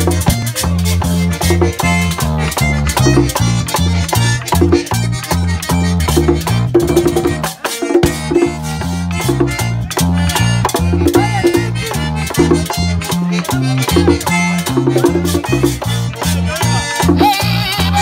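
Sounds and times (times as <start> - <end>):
drum: 0.0 - 5.1, 5.7 - 9.7, 10.3 - 18.0
button accordion: 0.0 - 18.0
electric bass: 0.0 - 18.0.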